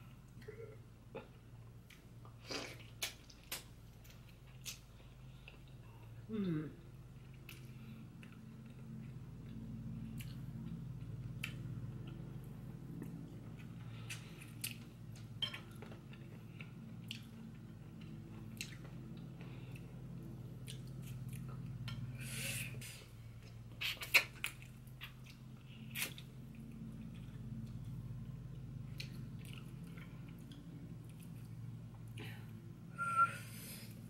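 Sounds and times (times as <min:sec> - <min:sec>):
steady low hum: 0:00.0 - 0:34.0
wet chewing and gnawing: 0:07.2 - 0:22.1, 0:23.4 - 0:32.2.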